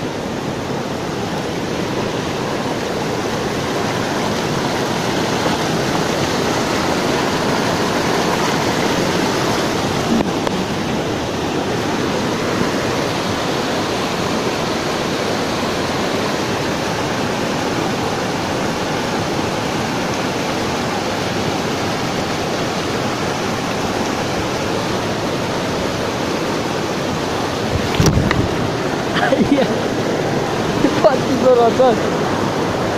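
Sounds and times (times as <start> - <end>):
stream rushing over boulders: 0.0 - 32.9.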